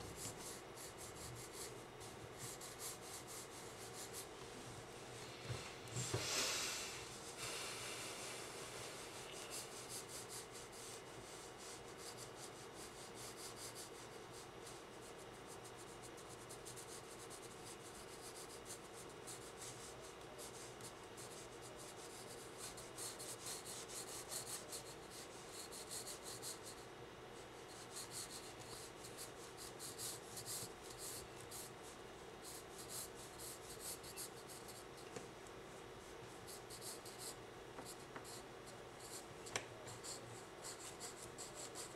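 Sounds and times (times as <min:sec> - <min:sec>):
pencil scratching on paper: 0:00.2 - 0:04.3, 0:09.4 - 0:14.1, 0:14.7 - 0:26.8, 0:27.7 - 0:35.0, 0:36.0 - 0:39.3, 0:39.9 - 0:41.9.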